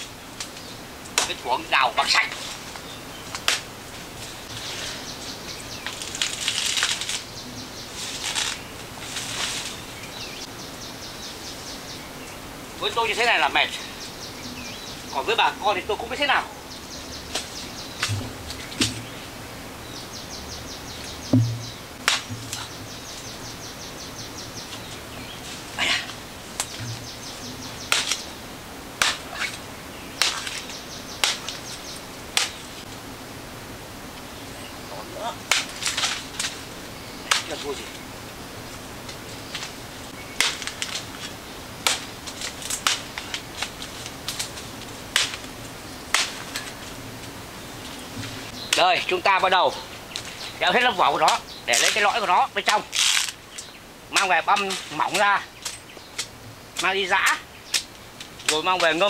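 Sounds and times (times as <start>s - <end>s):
leaves rustling: 0.0s - 59.0s
machete chopping palm trunk: 21.3s - 22.8s, 27.8s - 28.2s, 29.0s - 29.6s, 30.2s - 31.6s, 32.4s - 32.6s, 35.5s - 36.5s, 37.3s - 37.8s, 40.4s - 41.0s, 41.8s - 43.7s, 45.1s - 45.4s, 46.1s - 46.5s.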